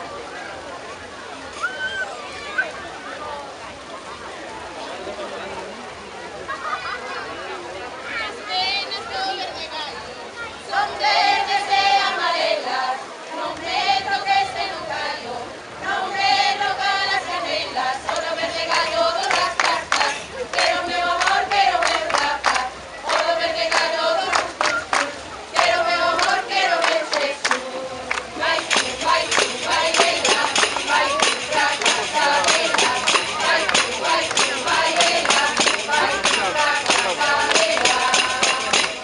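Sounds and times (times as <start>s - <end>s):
group singing folk song: 10.6s - 39.0s
tambourines beating rhythm: 28.4s - 39.0s.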